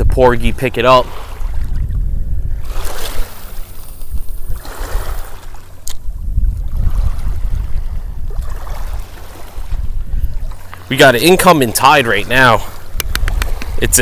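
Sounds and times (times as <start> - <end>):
wind buffeting microphone: 0.0 - 14.0
waves lapping on pebbles: 2.6 - 6.0, 6.7 - 14.0.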